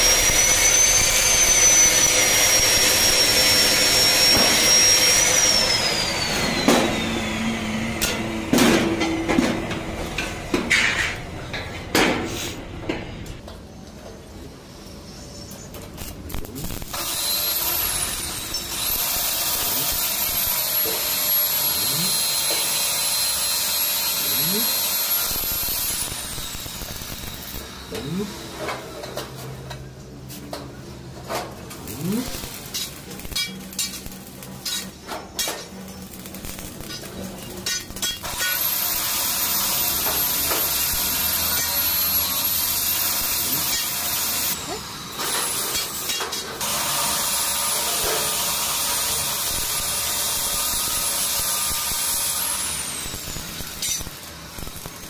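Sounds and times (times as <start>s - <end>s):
thin high whine: 0.0s - 7.4s
welding arc crackling and hissing: 0.0s - 9.1s, 15.7s - 29.6s, 31.5s - 55.0s.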